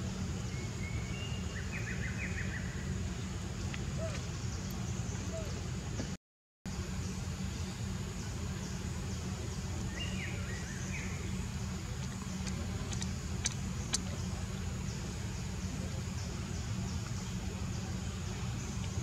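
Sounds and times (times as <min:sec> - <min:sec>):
faint sharp clicks: 0:12.0 - 0:14.2.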